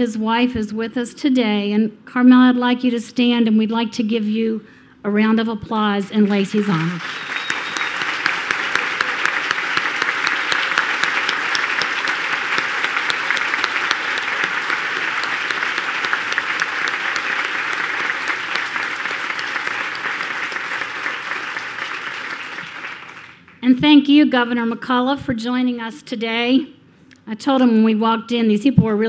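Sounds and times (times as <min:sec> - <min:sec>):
audience applauding: 0:06.2 - 0:23.6.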